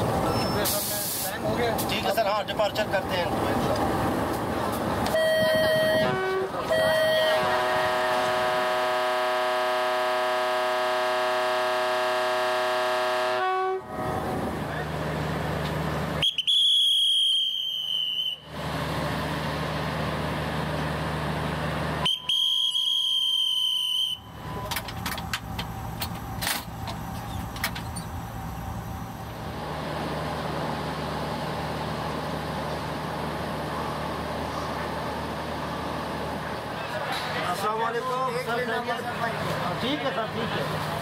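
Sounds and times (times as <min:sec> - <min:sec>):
diesel locomotive idling: 0:00.0 - 0:41.0
shrill whistle blasts: 0:16.2 - 0:18.5, 0:22.0 - 0:24.7.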